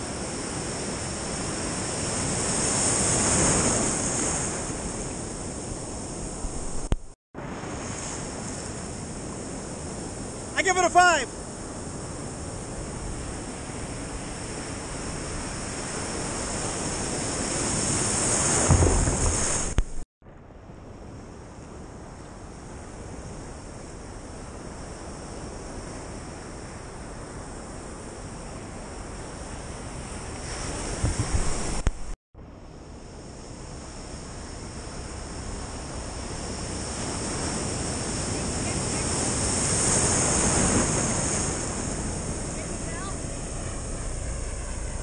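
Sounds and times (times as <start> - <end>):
ocean surf washing: 0.0 - 20.0, 22.9 - 32.2, 33.2 - 45.0
wind buffeting microphone: 11.8 - 20.0, 28.2 - 32.2.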